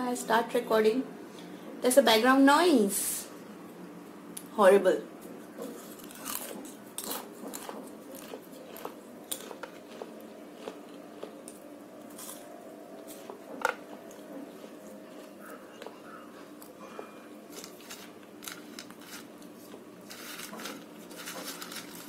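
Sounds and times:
crisp sweet chewed with crunches: 5.6 - 16.8.

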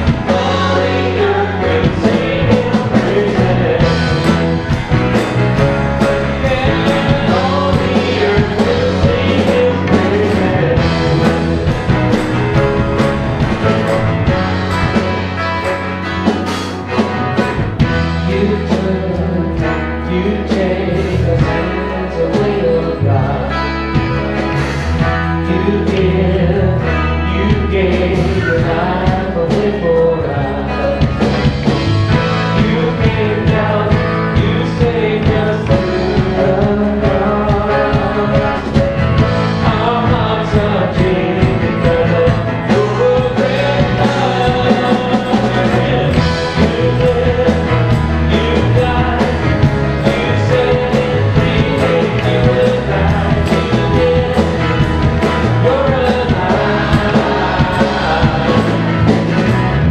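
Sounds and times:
man singing lead: 0.0 - 15.4, 16.9 - 59.9
acoustic guitar strumming: 0.0 - 20.4.

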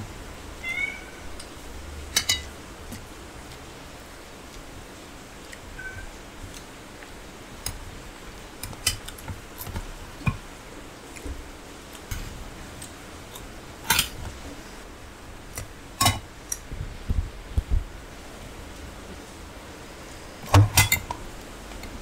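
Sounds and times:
metal spoon clinking on plates: 2.1 - 2.5, 13.8 - 14.2, 16.0 - 16.6, 20.6 - 21.2.

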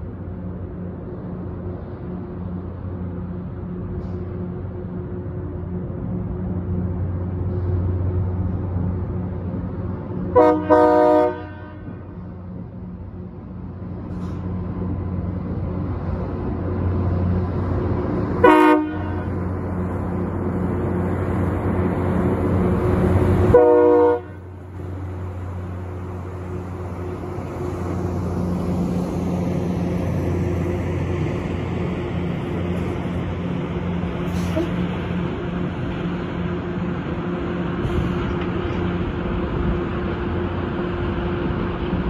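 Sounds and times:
diesel train engines droning: 0.0 - 42.0
train air horn blasts: 10.4 - 12.1, 18.4 - 19.4, 23.5 - 24.5, 34.3 - 34.8.

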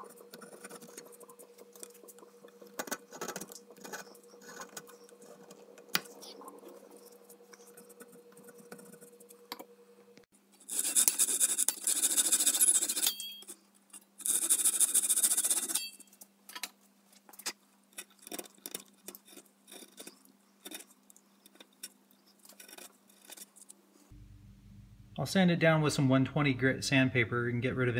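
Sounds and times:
chisel scraping wood: 0.0 - 9.2, 18.0 - 23.6
hand saw cutting wood: 10.7 - 13.0
faint low hum: 19.2 - 27.9.

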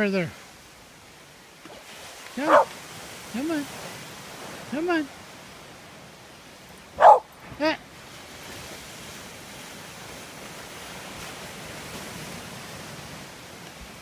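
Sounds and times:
surf breaking on shore: 0.0 - 14.0
dog barking: 2.4 - 2.7, 7.0 - 7.3.

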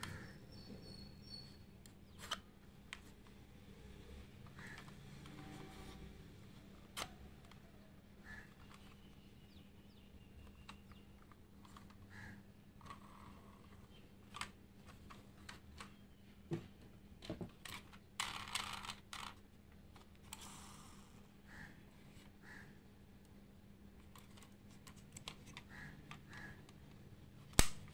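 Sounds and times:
faint steady hum: 0.0 - 27.9
clicks of model vehicles handled: 1.8 - 3.4, 4.1 - 9.3, 9.9 - 16.0, 16.6 - 20.7, 24.0 - 27.9.

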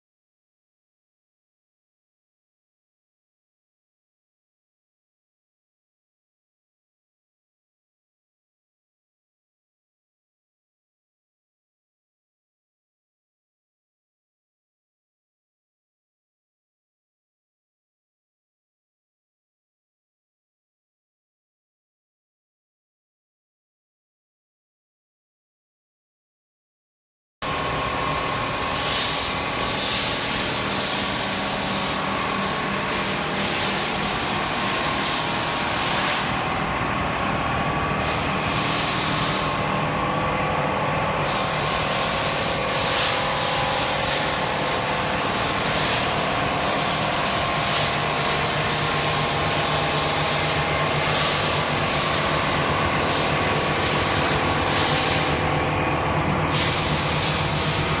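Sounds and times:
steady whine: 27.4 - 58.0
welding machine hiss: 27.5 - 36.5, 37.9 - 39.8, 41.2 - 58.0.

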